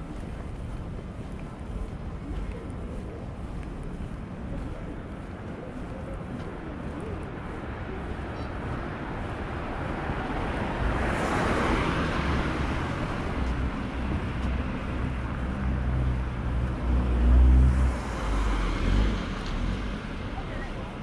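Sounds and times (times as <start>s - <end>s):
car passing: 9.9s - 21.0s.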